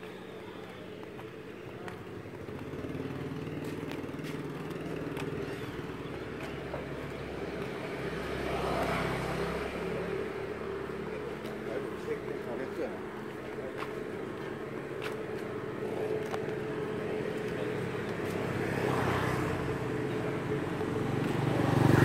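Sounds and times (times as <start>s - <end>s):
motorbike engines: 0.0s - 22.0s
vehicle passing close: 16.7s - 22.0s.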